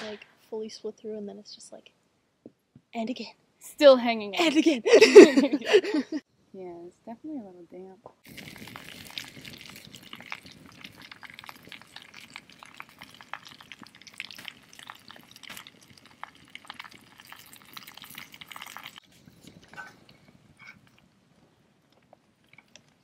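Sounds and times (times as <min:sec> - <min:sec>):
campfire crackling and popping: 0:08.2 - 0:23.0
fire hiss: 0:08.3 - 0:12.0.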